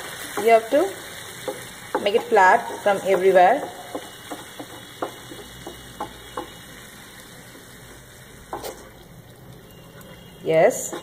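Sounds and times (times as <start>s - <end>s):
wooden spatula tapping in a pan: 0.1s - 0.8s, 1.4s - 6.6s.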